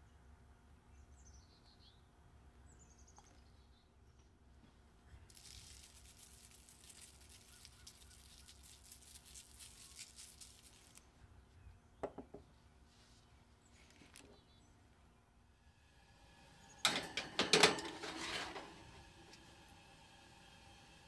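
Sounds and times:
faint crackly hiss: 4.6 - 11.2, 12.8 - 14.6.

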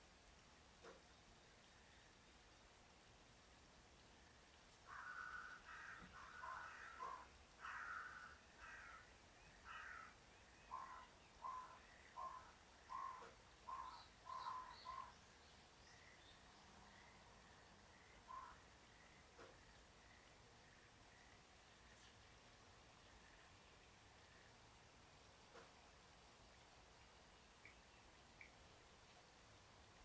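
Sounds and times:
faint crow cawing: 4.8 - 15.2, 18.2 - 20.2.

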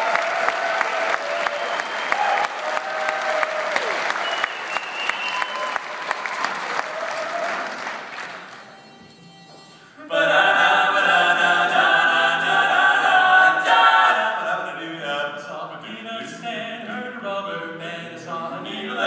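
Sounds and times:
audience applause: 0.0 - 8.6
male vocal quartet singing a cappella: 10.1 - 19.0.

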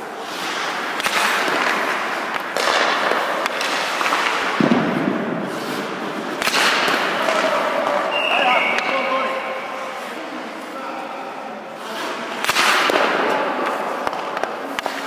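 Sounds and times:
skate blades scraping ice: 0.0 - 4.6, 5.4 - 7.3
sharp echoing puck cracks: 0.2 - 10.1, 12.2 - 15.0.

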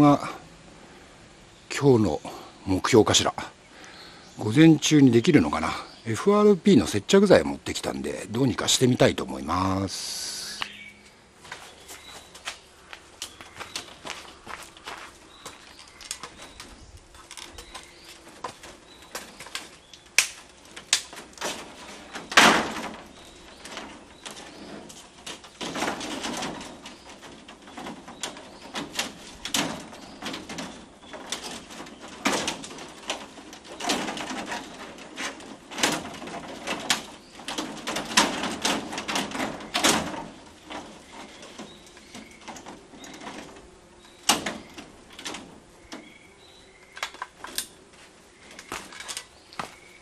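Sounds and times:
plastic panel clattering against frame: 15.8 - 46.2.

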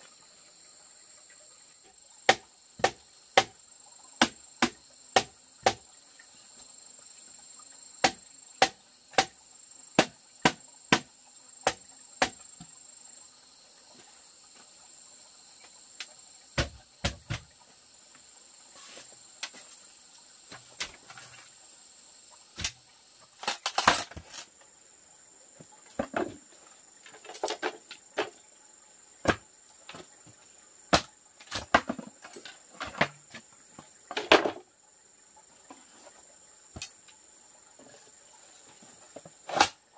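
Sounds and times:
insects buzzing: 0.0 - 39.9
bamboo knocks and clatter: 2.3 - 3.6, 4.2 - 5.8, 8.0 - 9.4, 10.0 - 12.7, 16.6 - 17.6, 18.9 - 19.8, 20.5 - 21.6, 22.6 - 24.5, 25.6 - 28.4, 29.2 - 34.7, 35.7 - 37.0, 38.8 - 39.8
machete striking bamboo: 2.3 - 3.6, 4.2 - 5.8, 8.0 - 9.4, 10.0 - 12.4, 22.6 - 22.8, 23.4 - 24.4, 30.9 - 32.0, 39.5 - 39.8.

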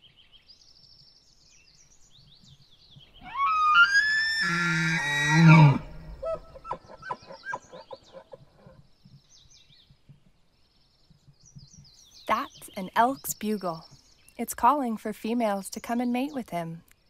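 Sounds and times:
elk bugling: 3.2 - 8.8.

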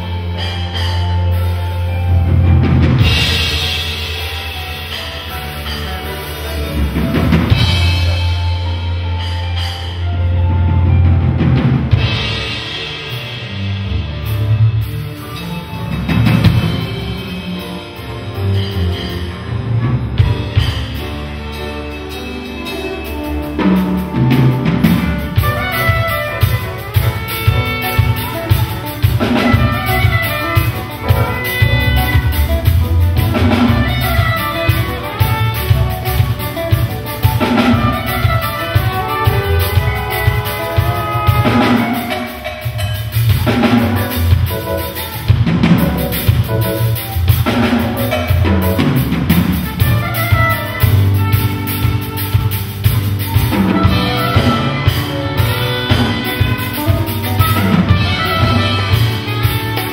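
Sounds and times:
double bass notes: 0.0 - 59.9
drum kit beat: 0.0 - 59.9
saxophone melody: 20.9 - 59.9.

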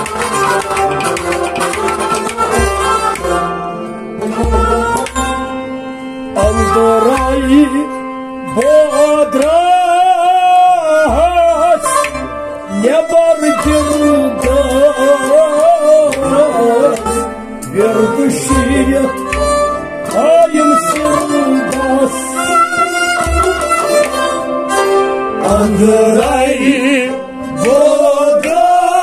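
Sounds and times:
sustained instrumental melody: 0.0 - 29.0
man singing with vibrato: 6.2 - 19.3, 20.0 - 23.1, 25.3 - 29.0.

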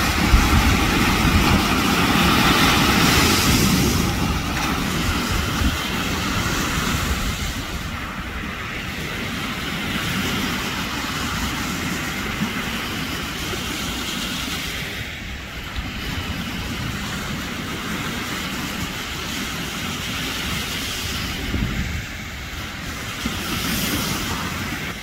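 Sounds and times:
sea waves breaking against rocks: 0.0 - 25.0
wind buffeting microphone: 0.0 - 25.0.

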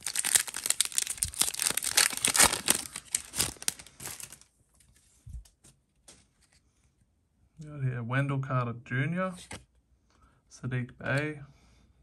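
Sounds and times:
wrapper crinkling: 0.0 - 4.5.

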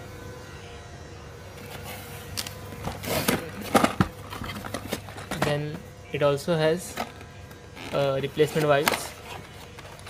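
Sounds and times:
packaging rustling: 1.7 - 5.6, 6.9 - 10.0.

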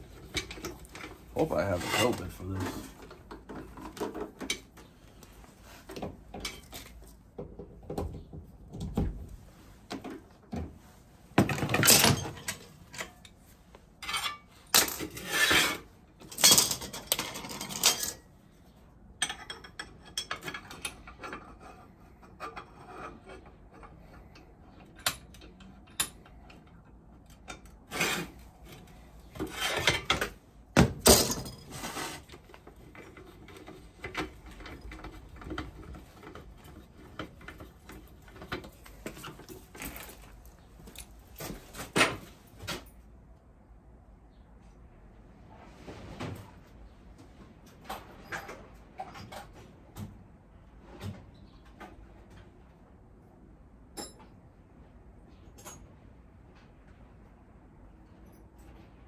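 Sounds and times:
metal tools clattering: 11.5 - 13.3, 14.0 - 18.2, 31.0 - 32.2.

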